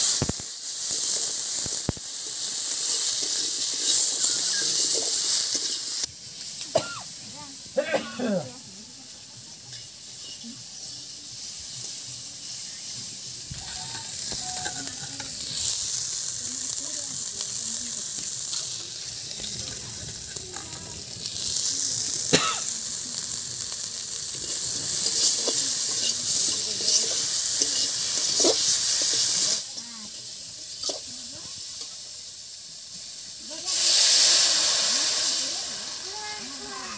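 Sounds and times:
frying in oil in a wok: 0:00.0 - 0:36.9
spatula stirring: 0:13.5 - 0:16.0, 0:24.3 - 0:29.4.

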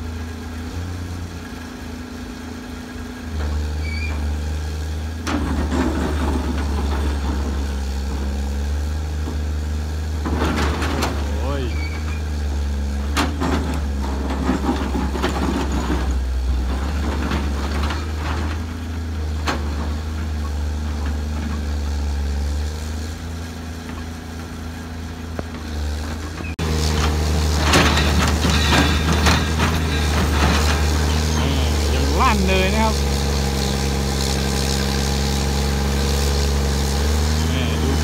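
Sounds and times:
excavator engine running: 0:00.0 - 0:38.0
bucket clanking on rock: 0:27.5 - 0:32.4.

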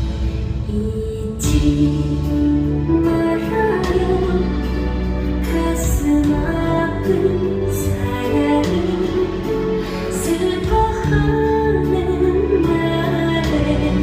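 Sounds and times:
sustained musical accompaniment: 0:00.0 - 0:14.0.

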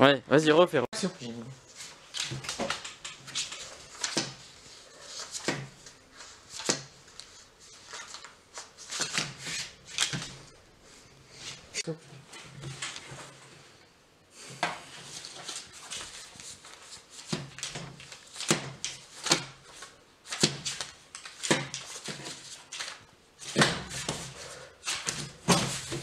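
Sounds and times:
paper banknotes slapping on table: 0:01.8 - 0:10.5, 0:15.2 - 0:26.0.

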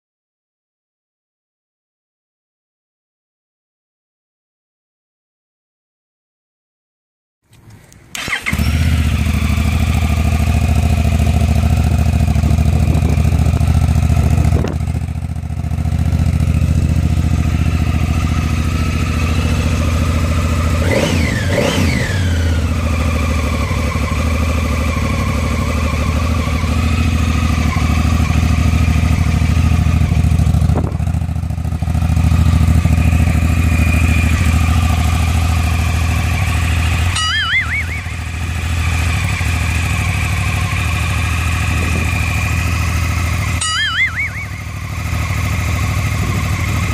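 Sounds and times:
motorcycle engine idling: 0:08.1 - 0:46.9
throttle blip: 0:37.2 - 0:38.2, 0:43.6 - 0:44.7.

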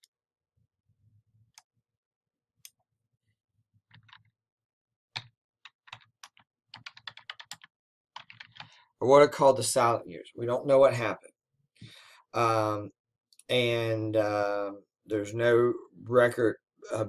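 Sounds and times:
typing on a computer keyboard: 0:03.9 - 0:04.3, 0:05.2 - 0:08.8.

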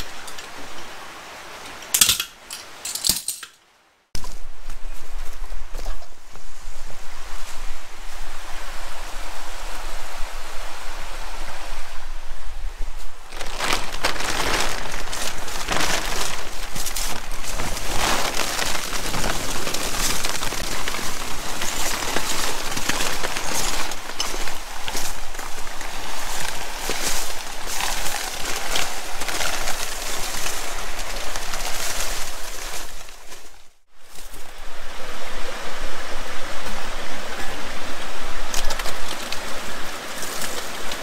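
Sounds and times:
plastic tarp rustling: 0:13.0 - 0:34.5, 0:38.6 - 0:41.0.

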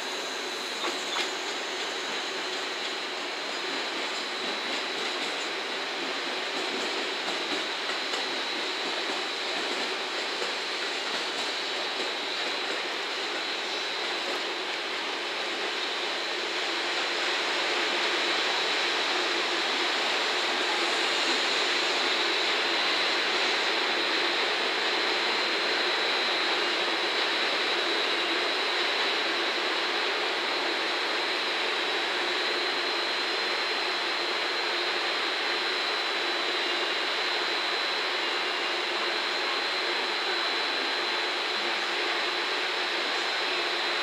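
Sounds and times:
electric trains rushing: 0:00.0 - 0:34.0
thin high whine: 0:00.0 - 0:44.0.

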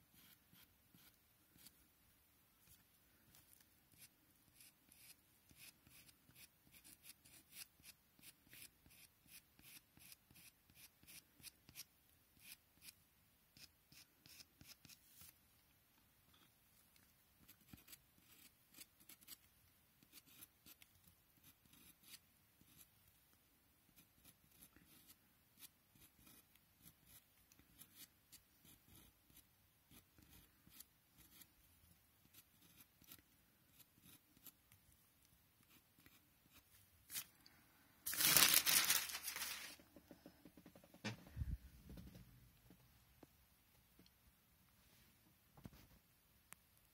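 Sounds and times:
pencil scratching on paper: 0:00.1 - 0:01.8, 0:02.6 - 0:15.4, 0:17.4 - 0:23.0, 0:23.9 - 0:31.6, 0:32.2 - 0:34.7, 0:35.6 - 0:36.8.

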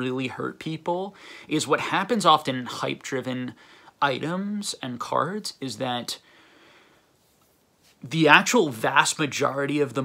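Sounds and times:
man speaking: 0:00.0 - 0:06.2, 0:08.0 - 0:10.0
faint breath: 0:01.1 - 0:01.5, 0:03.6 - 0:04.0, 0:06.2 - 0:07.4.

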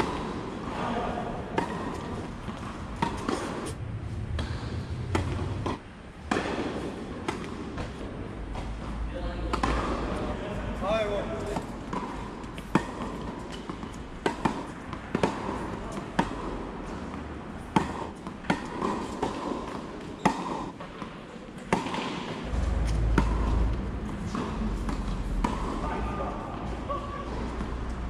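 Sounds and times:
tennis balls hit by rackets: 0:00.0 - 0:28.0
low rumble: 0:03.7 - 0:06.2.

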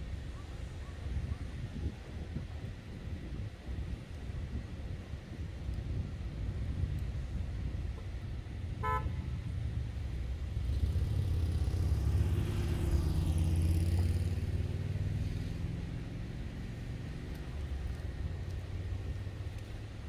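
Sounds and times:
engine passing by: 0:09.8 - 0:20.0.

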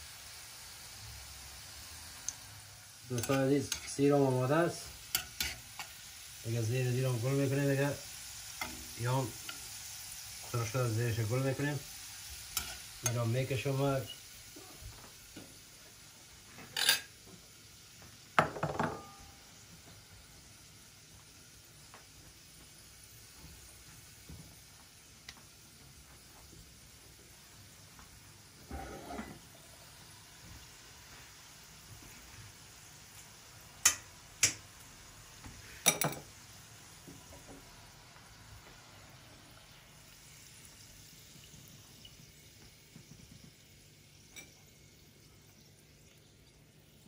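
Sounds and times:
garlic sizzling in oil: 0:00.0 - 0:47.0
ceramic bowl clinking on worktop: 0:18.4 - 0:19.3, 0:35.8 - 0:36.3.

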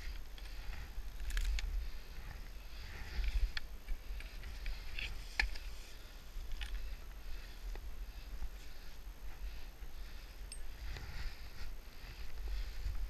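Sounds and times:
snow and clothing crunching: 0:04.3 - 0:13.0.

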